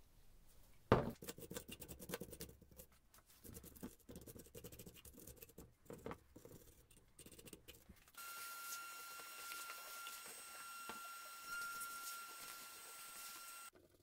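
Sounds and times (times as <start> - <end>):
heavy thump on bench: 0.9 - 1.2.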